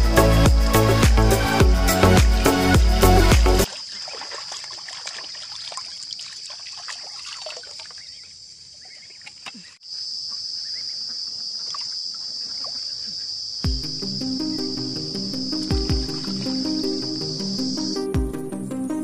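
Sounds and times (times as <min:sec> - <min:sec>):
hands splashing in water: 0:03.7 - 0:08.1
high-pitched insect drone: 0:13.6 - 0:18.1.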